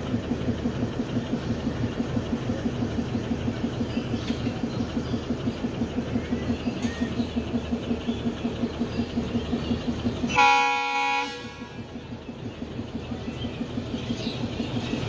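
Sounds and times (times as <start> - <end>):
diesel locomotive throbbing: 0.0 - 15.0
locomotive horn blast: 10.3 - 11.9.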